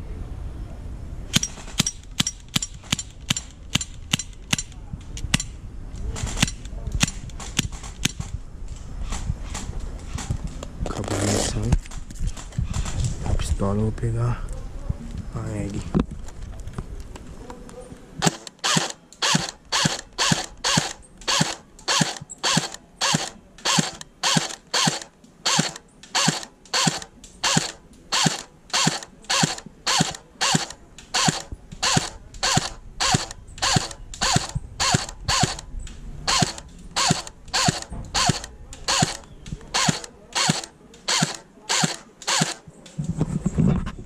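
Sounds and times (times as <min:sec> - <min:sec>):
magazine winding ratchet: 0:18.2 - 0:35.7, 0:36.3 - 0:42.6.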